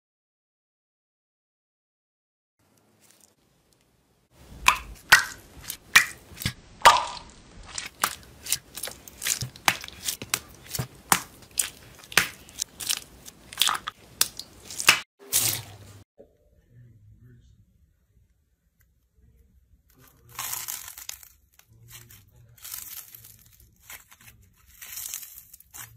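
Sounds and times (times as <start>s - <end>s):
foam-bead slime crunch: 4.4s - 16.0s, 20.0s - 25.9s
plastic bags of slime squelching: 4.4s - 16.0s, 20.0s - 25.9s.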